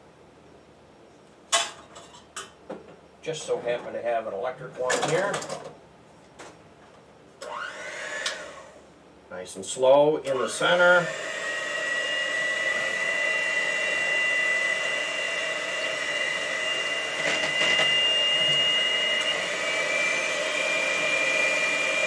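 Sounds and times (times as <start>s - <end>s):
electric hand mixer whining: 7.4s - 8.8s, 10.3s - 22.0s.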